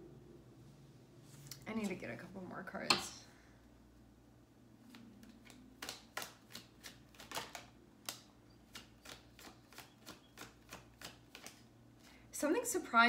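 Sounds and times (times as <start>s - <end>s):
cards being shuffled: 4.9s - 11.7s.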